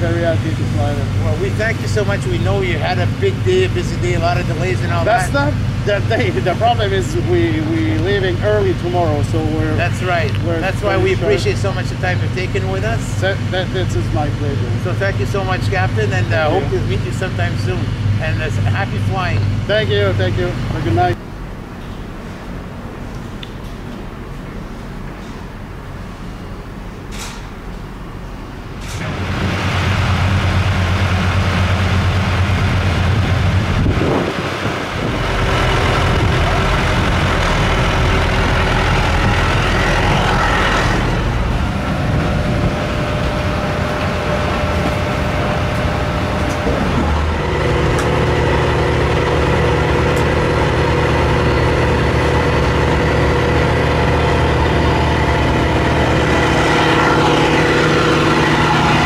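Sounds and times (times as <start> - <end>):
machinery drone with low hum: 0.0 - 59.0
steady tones: 29.8 - 59.0
higher steady tones: 34.5 - 59.0.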